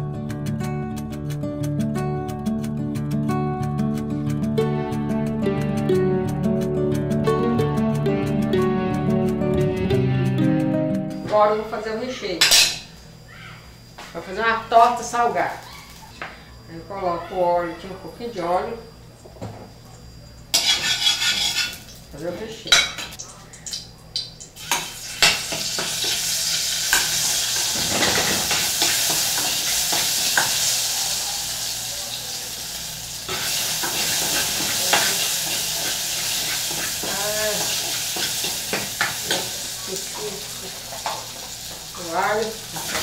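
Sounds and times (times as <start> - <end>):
spoon scraping a pan: 20.5 - 21.9, 33.3 - 39.6
garlic sizzling in oil: 20.5 - 22.1, 23.7 - 43.0.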